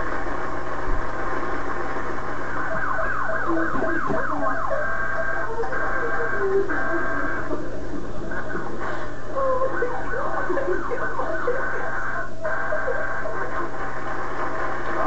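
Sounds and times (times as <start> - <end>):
alarm clocks beeping and warbling: 2.5 - 7.5.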